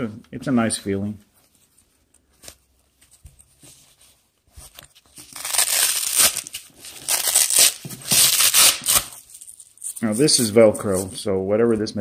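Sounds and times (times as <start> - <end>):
hook-and-loop fastener ripping: 5.2 - 10.0.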